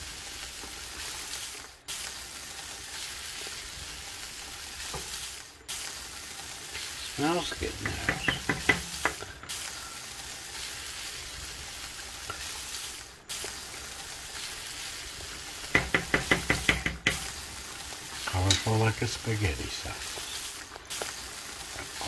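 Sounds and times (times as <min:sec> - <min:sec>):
chili simmering with low sizzle: 0:00.0 - 0:22.0
wooden spoon knocking on pan: 0:07.7 - 0:09.2, 0:15.7 - 0:17.3.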